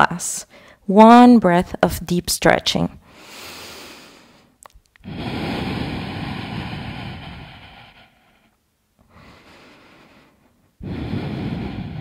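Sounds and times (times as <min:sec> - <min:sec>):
faint breath: 0:00.5 - 0:00.8, 0:03.0 - 0:12.0
deep exhale: 0:03.1 - 0:12.0.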